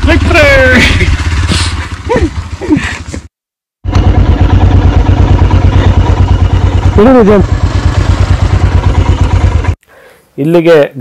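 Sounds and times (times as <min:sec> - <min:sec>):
motorcycle engine running: 0:00.0 - 0:09.8.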